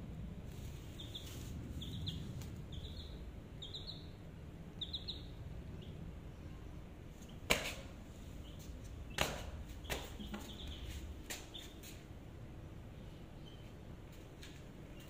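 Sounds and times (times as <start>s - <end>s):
chick peeping: 0.7s - 4.2s, 4.8s - 6.0s, 8.4s - 12.0s.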